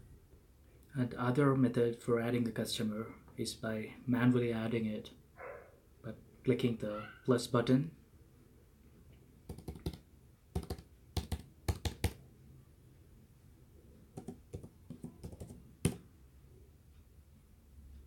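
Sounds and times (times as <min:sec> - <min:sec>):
keyboard typing: 0:09.5 - 0:10.0, 0:10.6 - 0:12.2, 0:14.2 - 0:16.0.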